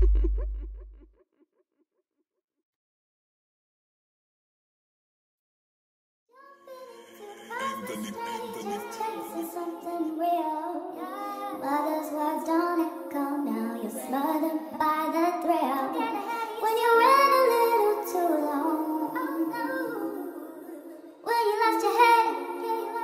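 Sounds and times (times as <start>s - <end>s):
high singing voice: 6.4s - 23.0s.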